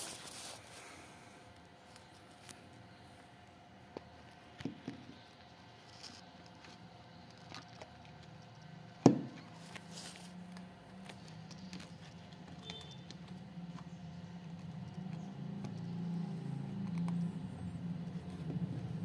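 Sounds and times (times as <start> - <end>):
low steady rumble: 13.1 - 19.0.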